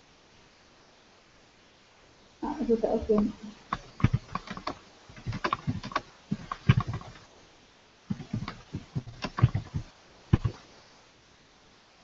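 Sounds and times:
keyboard key clicks: 3.2s - 7.2s.

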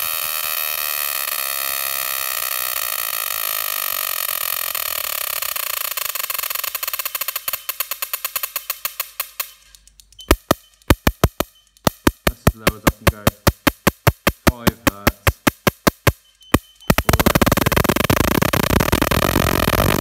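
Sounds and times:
electric spark buzzing and snapping: 0.0s - 20.0s.

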